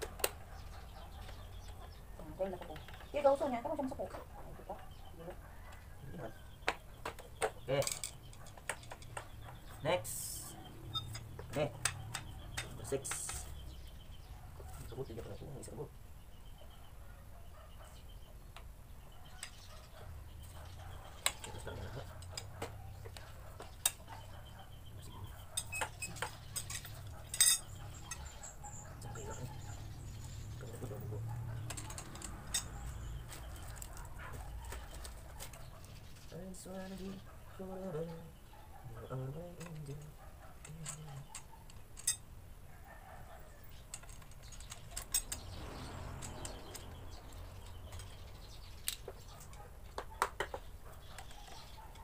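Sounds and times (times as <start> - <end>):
metal tubes clinking and knocking: 7.0 - 9.7, 10.3 - 13.6, 25.4 - 31.0, 31.6 - 34.1, 39.6 - 42.3, 43.8 - 49.6.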